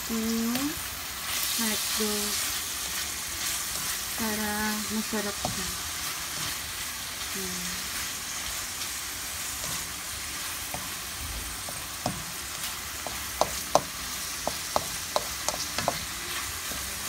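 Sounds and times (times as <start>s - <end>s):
food sizzling in a wok: 0.0s - 17.0s
spatula knocking against pan: 13.0s - 16.1s.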